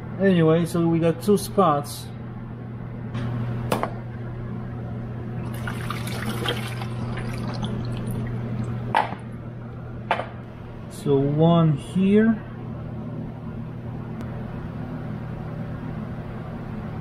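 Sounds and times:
water pouring into plastic pan: 0:05.5 - 0:08.4.

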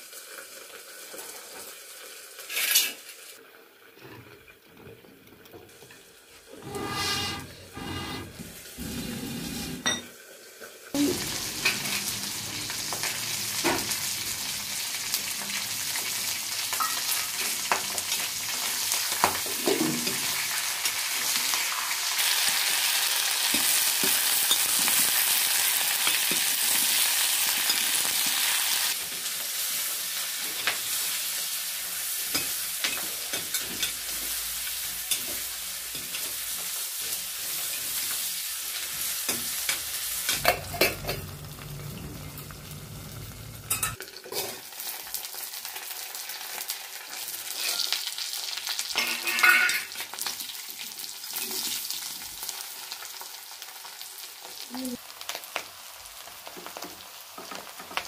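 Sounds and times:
food sizzling in a wok: 0:00.0 - 0:04.7, 0:05.6 - 0:58.0
metal spatula scraping a pan: 0:06.5 - 0:10.0, 0:49.0 - 0:50.0.

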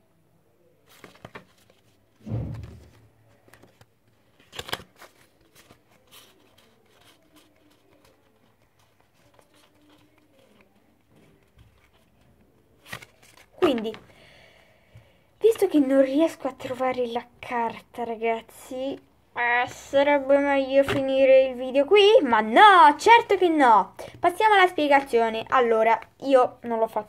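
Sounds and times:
playing cards clicking and rustling: 0:00.9 - 0:01.9, 0:02.5 - 0:14.1
soft thump: 0:02.2 - 0:03.1
cards snapping: 0:04.4 - 0:08.2, 0:12.8 - 0:14.0.

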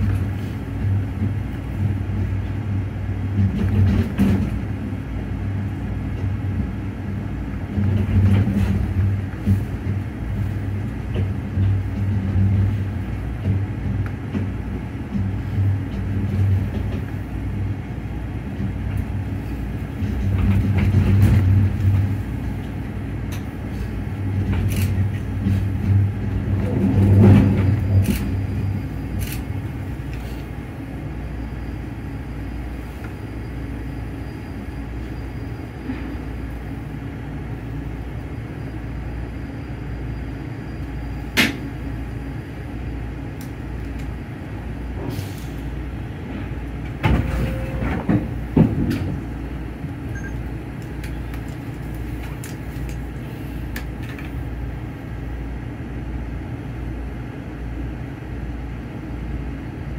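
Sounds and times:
knocks and clunks: 0:46.8 - 0:49.3.

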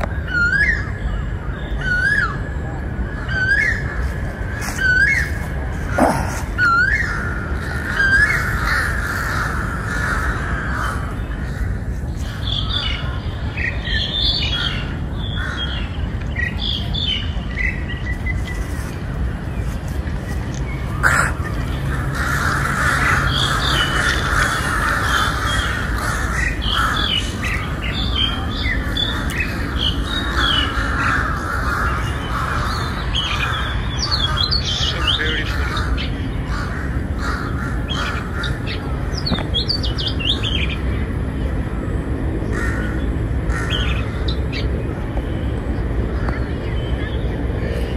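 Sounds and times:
steady low rumble: 0:01.2 - 0:47.9
crows cawing: 0:05.9 - 0:12.6, 0:14.6 - 0:15.8, 0:21.0 - 0:38.6, 0:42.4 - 0:44.3.

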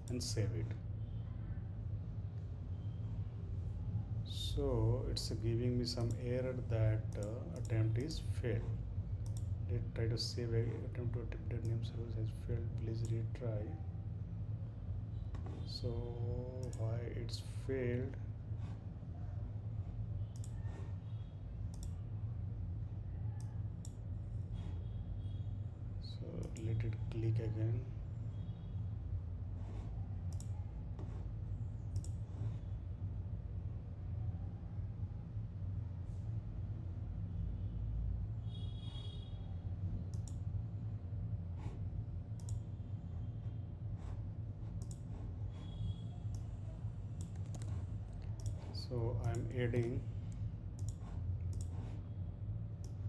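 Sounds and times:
computer mouse clicks: 0:00.0 - 0:00.3, 0:05.9 - 0:06.4, 0:07.1 - 0:09.6, 0:16.6 - 0:16.9, 0:20.3 - 0:21.0, 0:21.7 - 0:22.0, 0:29.6 - 0:32.6, 0:40.1 - 0:40.5, 0:42.4 - 0:42.7, 0:44.0 - 0:52.0, 0:52.8 - 0:53.0
steady low hum: 0:00.0 - 0:53.0.

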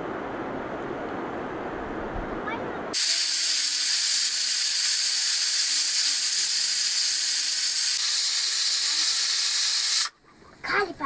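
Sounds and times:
steam hissing from a pot: 0:02.9 - 0:10.2.

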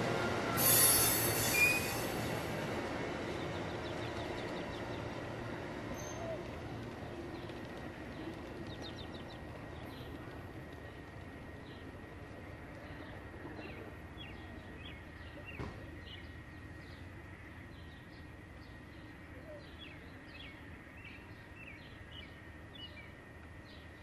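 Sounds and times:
train low rumble: 0:00.0 - 0:24.0
small birds chirping: 0:03.0 - 0:24.0.

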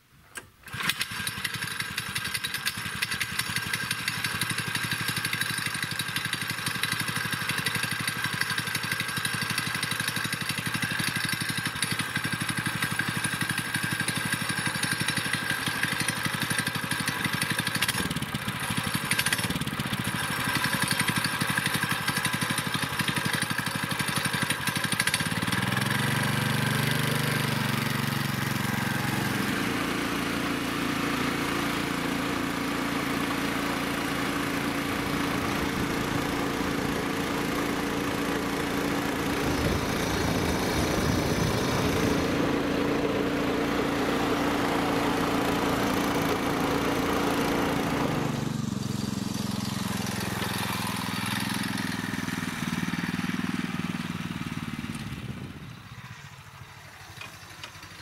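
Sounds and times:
motorcycle engine running: 0:00.8 - 0:58.0.

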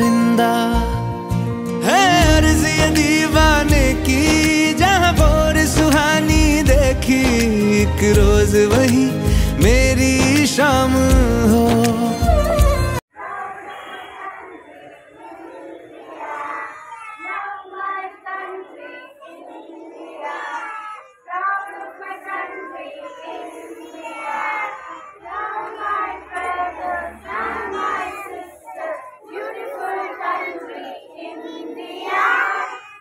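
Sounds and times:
children chanting in unison: 0:13.1 - 0:33.0.

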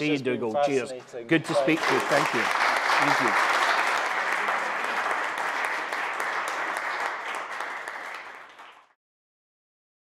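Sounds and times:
small audience applauding: 0:01.4 - 0:09.0.

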